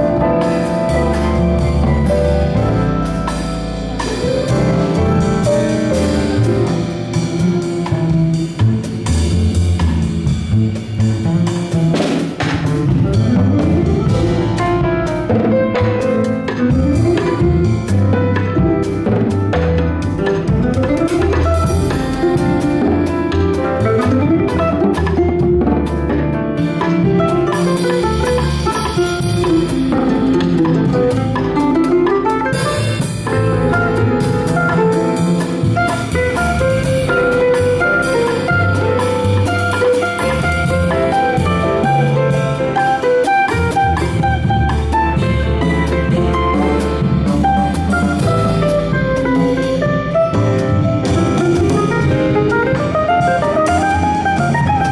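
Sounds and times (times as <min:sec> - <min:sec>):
bass line: 0:00.0 - 0:54.9
drum kit: 0:00.0 - 0:54.9
plucked mandolin melody: 0:26.8 - 0:35.2.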